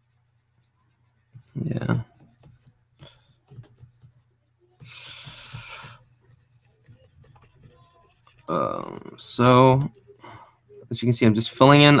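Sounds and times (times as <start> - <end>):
stylus scratching on tablet: 0.8 - 10.2.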